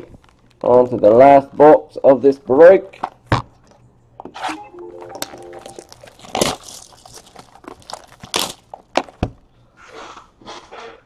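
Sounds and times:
shrink wrap crinkling and tearing: 5.7s - 9.2s.

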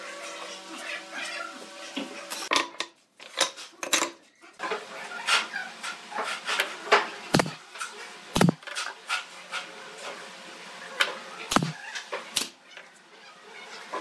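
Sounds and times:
nail gun firing into wood: 7.4s - 7.6s, 8.4s - 8.6s, 11.5s - 11.8s.

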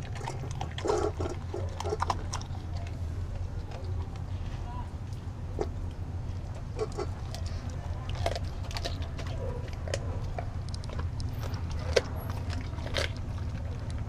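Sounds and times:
dog crunching bones: 0.0s - 4.4s, 5.0s - 14.0s.

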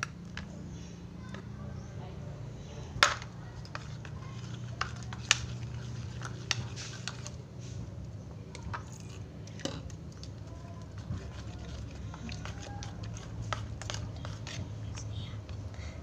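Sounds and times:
steady low hum: 0.0s - 16.0s
slime squelching: 3.2s - 16.0s.

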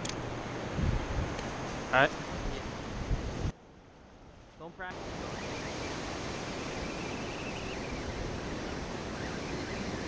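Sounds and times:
ocean surf breaking: 4.7s - 10.0s.

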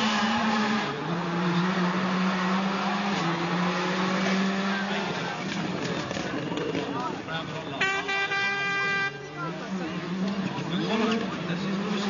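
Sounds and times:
rally car engine revving hard: 0.0s - 6.3s, 9.4s - 12.0s.

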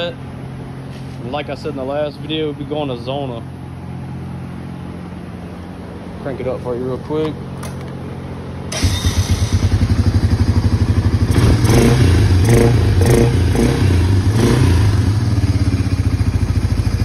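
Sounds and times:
atv engine idling and revving: 8.2s - 17.0s.

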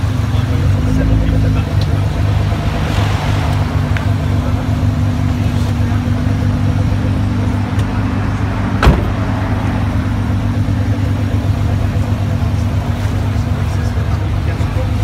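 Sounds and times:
car engine idling: 0.0s - 15.0s
sharp knock: 8.8s - 9.2s.

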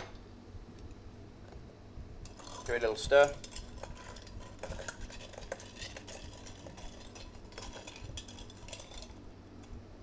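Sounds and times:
spoon stirring ice in glass: 2.3s - 9.2s.

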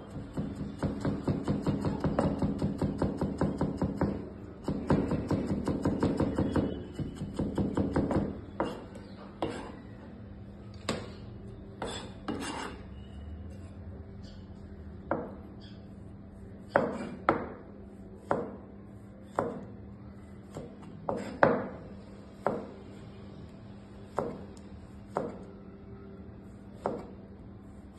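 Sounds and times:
knife chopping on plastic board: 0.2s - 9.7s, 16.6s - 17.6s, 18.2s - 18.7s, 19.3s - 19.7s, 20.4s - 21.8s, 25.1s - 25.5s, 26.8s - 27.2s.

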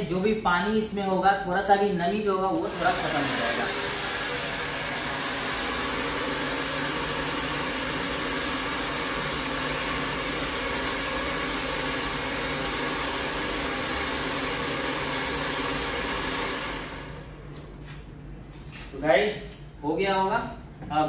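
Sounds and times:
hot-air dryer blowing: 2.5s - 17.7s.

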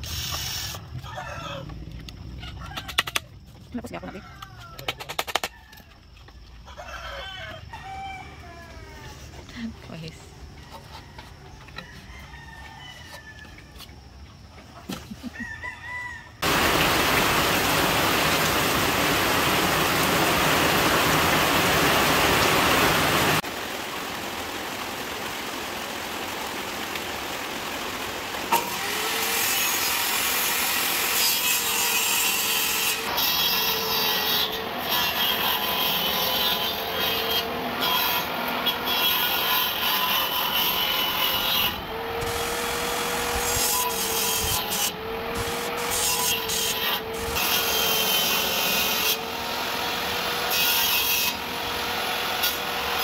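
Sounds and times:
power saw cutting bamboo: 0.0s - 0.9s, 16.4s - 24.4s, 25.0s - 53.0s
rooster crowing: 0.9s - 1.8s, 2.4s - 3.2s, 4.0s - 9.2s, 10.5s - 13.9s, 15.3s - 16.6s
loud steady noise: 16.4s - 29.1s.

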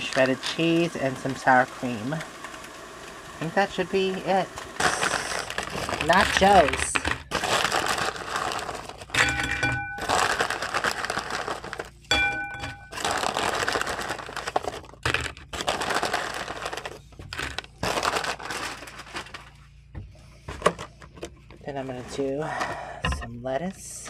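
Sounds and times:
chip bag crinkling: 3.5s - 19.6s
chips rattling and crunching: 4.8s - 19.6s.

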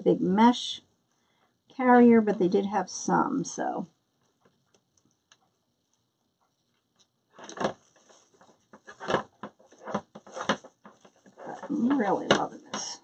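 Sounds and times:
mesh rustling and crinkling: 6.4s - 13.0s.

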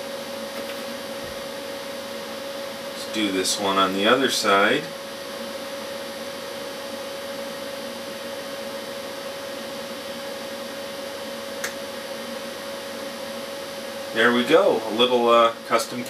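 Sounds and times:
mid-pitched hum tone: 0.0s - 16.0s.

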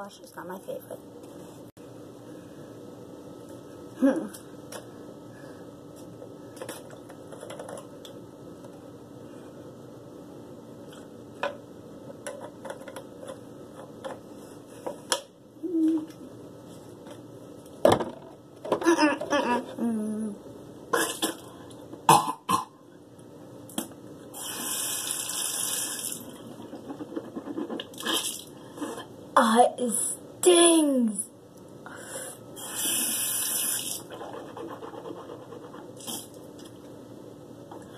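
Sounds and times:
child spitting into sink: 20.9s - 21.4s, 22.1s - 22.7s.

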